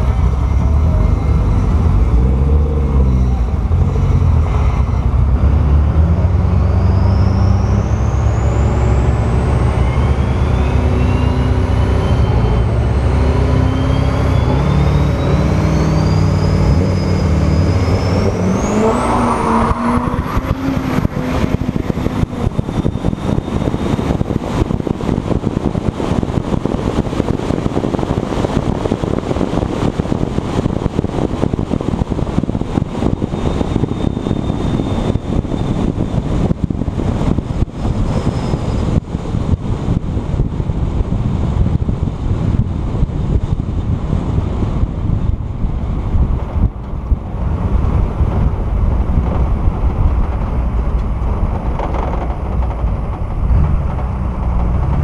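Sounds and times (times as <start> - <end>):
diesel pickup engine revving: 0.0 - 55.0
loud rushing noise: 0.0 - 55.0
turbo whistling: 6.4 - 24.3, 33.2 - 36.4.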